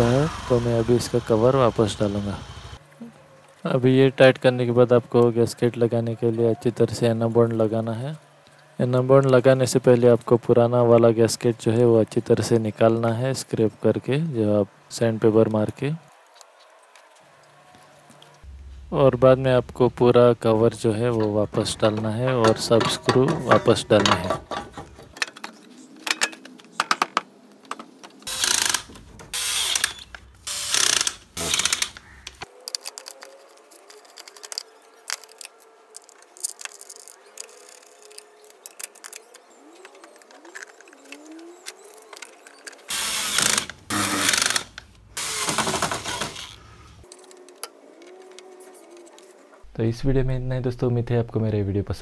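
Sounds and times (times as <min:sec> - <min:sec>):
screwdriver ratcheting: 0:28.3 - 0:33.2.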